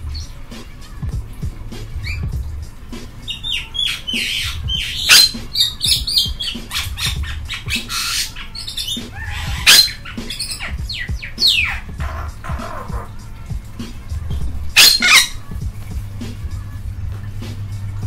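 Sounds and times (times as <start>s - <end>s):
bird squawking and chattering: 1.9s - 2.3s, 3.2s - 13.3s, 14.6s - 15.5s.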